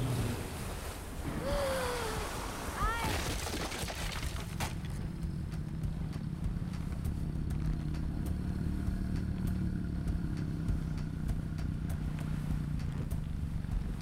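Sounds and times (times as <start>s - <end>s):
deep low rumble: 4.7s - 14.0s.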